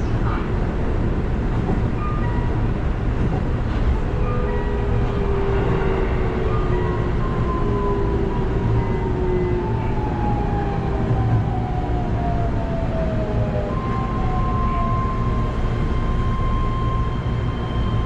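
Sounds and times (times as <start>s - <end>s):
train wheels rumbling on track: 0.0s - 18.0s.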